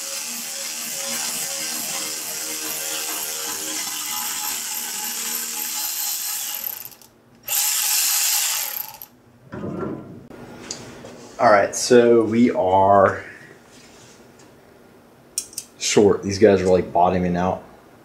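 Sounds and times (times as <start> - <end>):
power driver running: 0.0 - 9.1.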